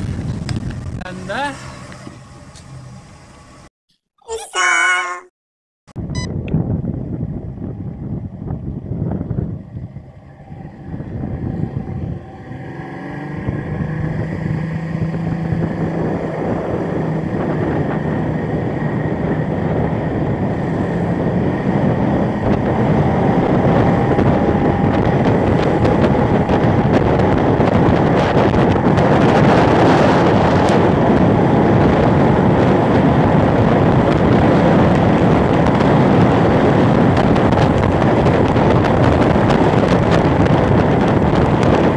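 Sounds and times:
wind noise on microphone: 0.0s - 2.8s, 5.9s - 41.9s
outboard motor running: 13.3s - 41.9s.

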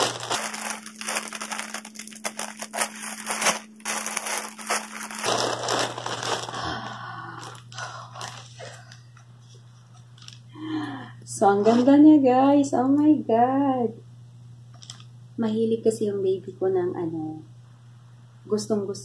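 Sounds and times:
plastic bag crinkling: 0.0s - 10.6s, 14.8s - 15.1s.

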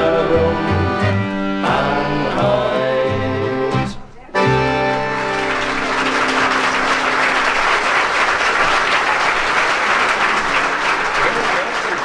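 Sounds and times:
band chord led by accordion: 0.0s - 7.8s
audience applauding: 4.6s - 12.0s.

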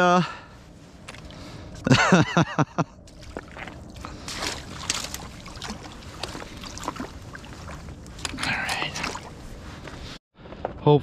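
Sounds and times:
splashes in shallow water: 3.1s - 9.3s.

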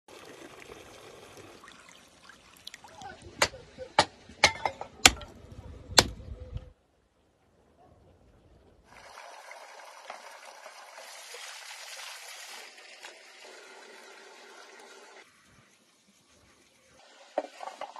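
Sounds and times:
water splashing in stone basin: 0.1s - 3.3s.

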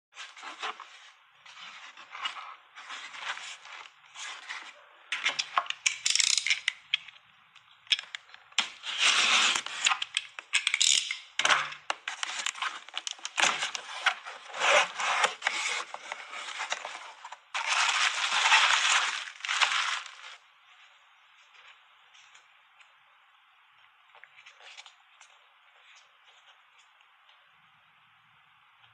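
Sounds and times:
bubble wrap crinkling: 7.9s - 20.6s
cardboard and tape tearing: 8.6s - 20.4s.

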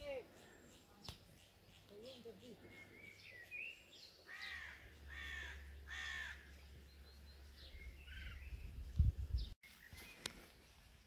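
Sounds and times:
bird calling: 0.0s - 8.7s
wind rumble on microphone: 7.6s - 9.6s.

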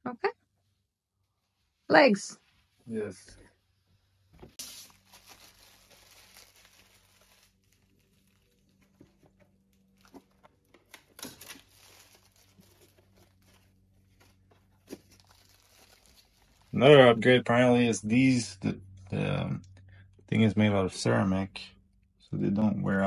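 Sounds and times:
low steady hum: 2.9s - 23.0s
foam rustling and crinkling: 4.5s - 17.2s.

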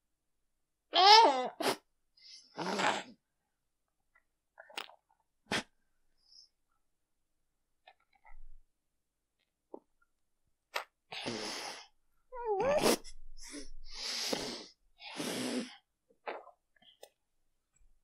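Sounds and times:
heavy breaths through nose: 12.8s - 15.8s.

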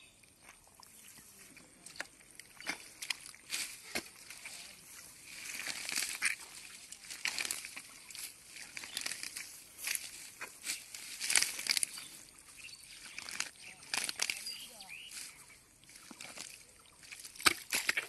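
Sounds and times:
wet squelches in mud: 0.0s - 18.0s
hands tearing wet grass: 5.3s - 12.1s, 13.0s - 14.7s.

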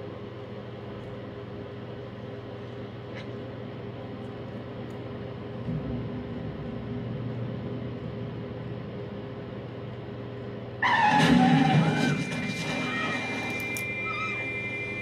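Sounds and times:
room hum and hiss: 0.0s - 15.0s
loud television music: 10.8s - 14.5s.

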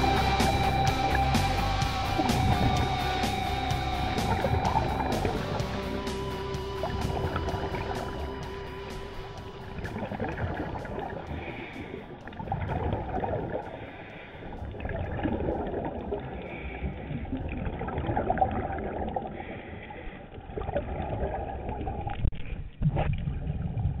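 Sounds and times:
regulator exhaust bubbling: 0.0s - 18.6s
muffled underwater rushing: 0.0s - 24.0s.

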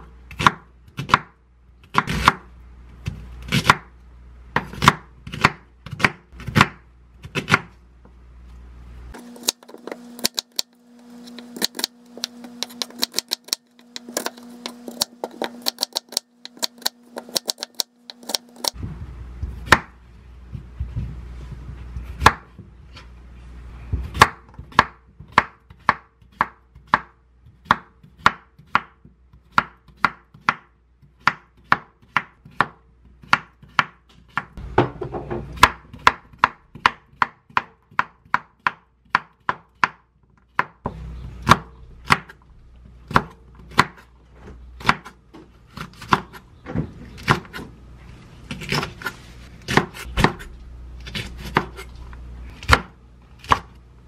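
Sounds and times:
knife chopping on wooden board: 0.3s - 2.5s, 3.1s - 3.9s, 4.6s - 7.7s, 9.1s - 18.8s, 22.0s - 22.6s, 24.0s - 40.0s, 43.1s - 44.1s, 44.8s - 47.7s, 48.5s - 51.9s, 52.6s - 53.7s.

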